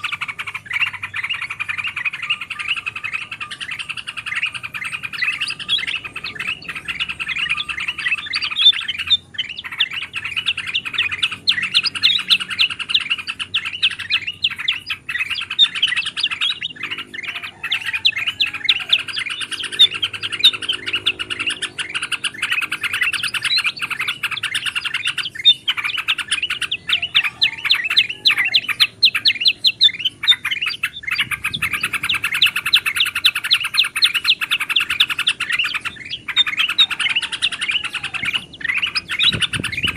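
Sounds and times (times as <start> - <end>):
bulbuls chirping and trilling: 0.0 - 39.9.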